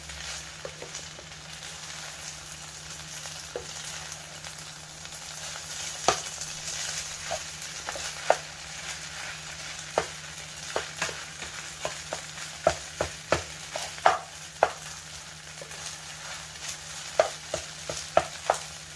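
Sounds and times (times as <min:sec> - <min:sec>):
rice sizzling in a frying pan: 0:00.0 - 0:18.9
spatula tapping and scraping pan: 0:00.6 - 0:01.3, 0:03.5 - 0:03.9, 0:06.0 - 0:15.0, 0:15.6 - 0:18.9.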